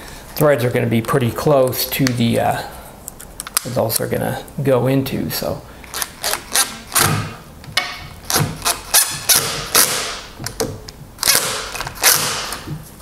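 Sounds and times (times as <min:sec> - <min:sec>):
impact driver hammering: 0:06.6 - 0:12.7.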